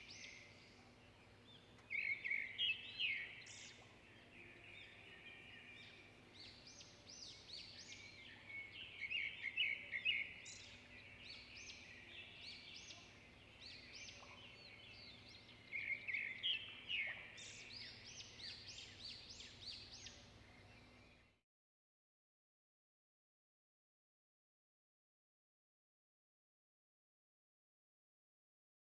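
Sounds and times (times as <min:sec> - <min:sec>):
songbirds chirping: 0:00.0 - 0:21.4.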